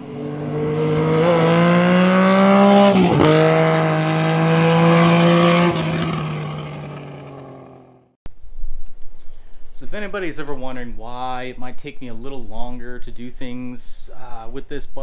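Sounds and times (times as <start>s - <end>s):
engine accelerating: 0.0s - 8.2s.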